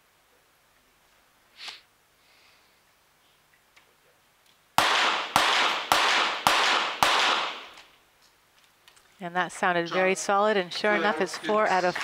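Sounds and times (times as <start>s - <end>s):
pistol shots echoing: 4.8s - 7.9s.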